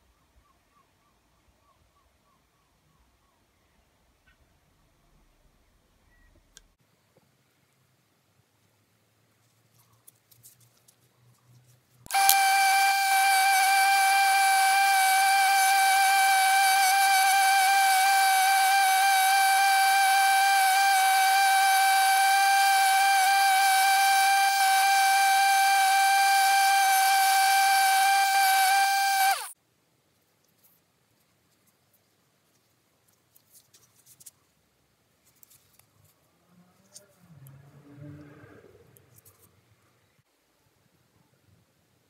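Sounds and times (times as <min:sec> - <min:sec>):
bench grinder high-pitched whine: 0:12.1 - 0:29.5.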